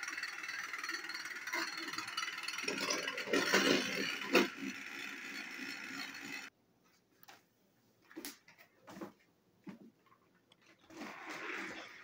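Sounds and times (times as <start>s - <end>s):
toy train motor whirring: 0.0s - 6.5s.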